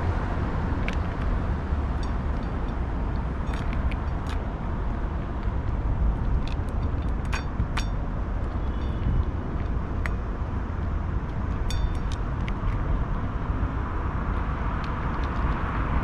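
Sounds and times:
steady low rumble: 0.0s - 16.0s
cat crunching dry kibble: 2.0s - 13.8s.

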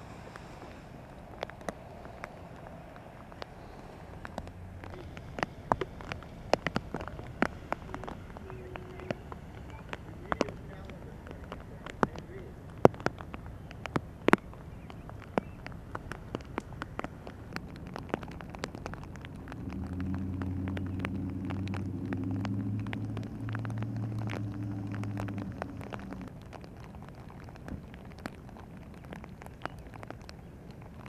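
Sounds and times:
low engine drone: 0.0s - 12.6s, 17.0s - 26.5s
heavy rain: 0.0s - 31.0s
sharp raindrop ticks: 0.0s - 31.0s.

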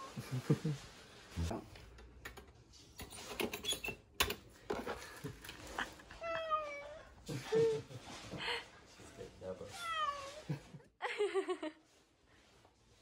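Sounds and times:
cat meowing: 6.2s - 7.1s, 9.7s - 10.5s.

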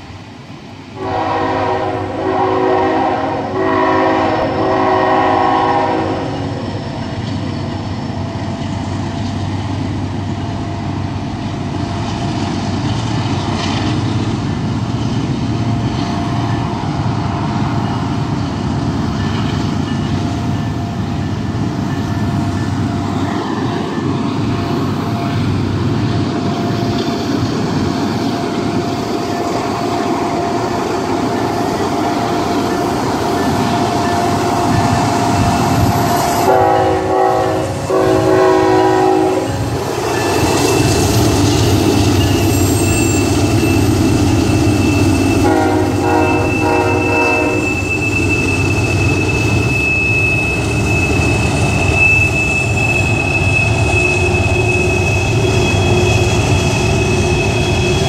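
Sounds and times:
train rumbling along rails: 0.0s - 58.0s
diesel locomotive horn blasts: 1.0s - 6.6s, 28.6s - 40.0s, 44.9s - 48.1s.

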